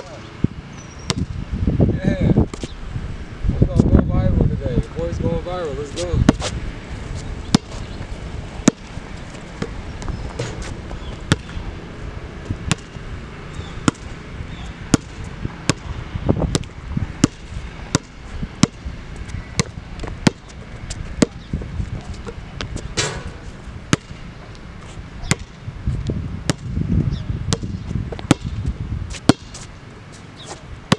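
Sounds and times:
basketball bouncing on hard court: 0:07.5 - 0:07.8, 0:08.6 - 0:08.9, 0:09.6 - 0:11.6, 0:12.7 - 0:13.0, 0:13.8 - 0:14.1, 0:14.9 - 0:18.8, 0:19.6 - 0:20.5, 0:21.2 - 0:22.7, 0:23.9 - 0:24.2, 0:25.2 - 0:25.6, 0:26.5 - 0:26.7, 0:27.5 - 0:28.6, 0:29.2 - 0:29.6.

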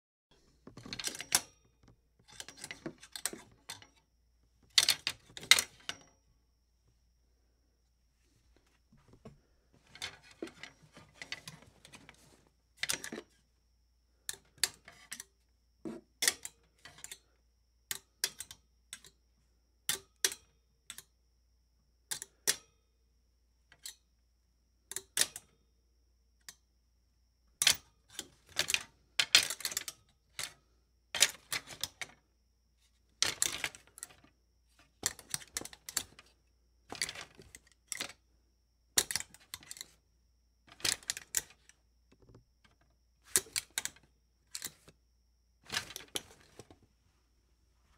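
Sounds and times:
clothes hanger clattering on metal: 0:00.7 - 0:04.0, 0:04.7 - 0:06.2, 0:09.9 - 0:13.4, 0:15.9 - 0:17.2, 0:27.6 - 0:30.6, 0:31.2 - 0:32.2, 0:33.2 - 0:34.3, 0:35.0 - 0:36.3, 0:36.9 - 0:38.2, 0:40.7 - 0:41.7, 0:42.7 - 0:44.9, 0:45.6 - 0:46.7.

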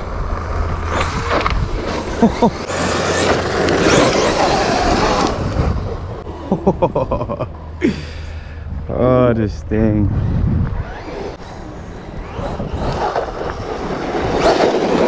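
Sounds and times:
electric motor whining: 0:00.2 - 0:06.3, 0:10.1 - 0:15.0.

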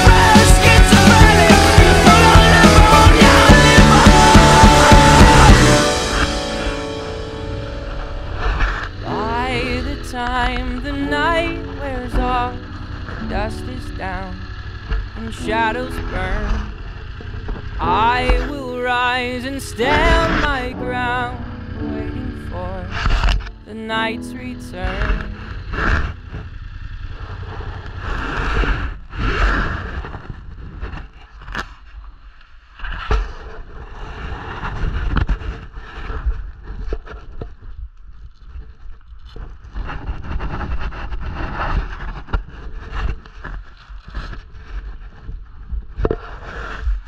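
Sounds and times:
vehicle rumble: 0:00.0 - 0:31.2.

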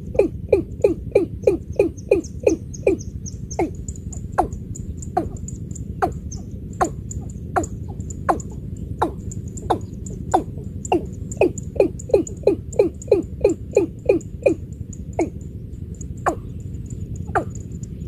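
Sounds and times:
bird calling hollow notes: 0:00.0 - 0:18.0
faint high ticking: 0:02.0 - 0:18.0.

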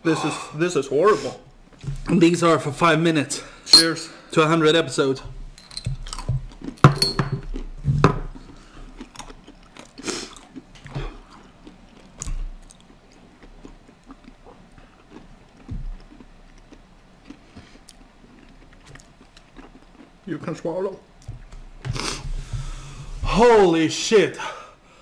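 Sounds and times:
peanuts crunching while chewed: 0:05.7 - 0:06.8, 0:07.4 - 0:21.3.

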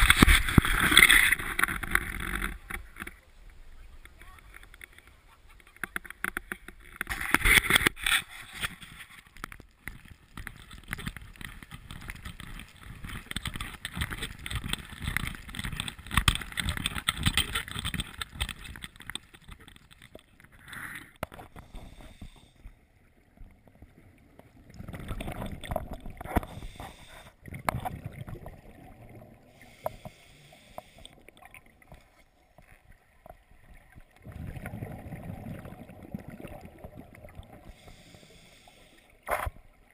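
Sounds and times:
gurgling regulator bubbles: 0:23.6 - 0:38.6.

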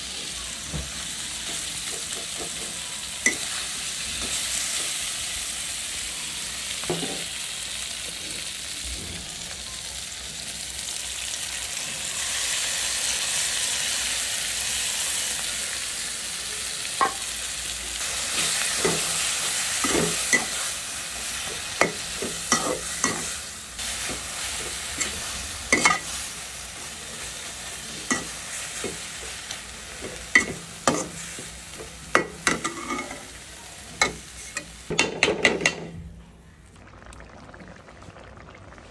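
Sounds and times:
vegetables sizzling in a pan: 0:00.0 - 0:35.4
metal spatula scraping pan: 0:32.4 - 0:33.3.

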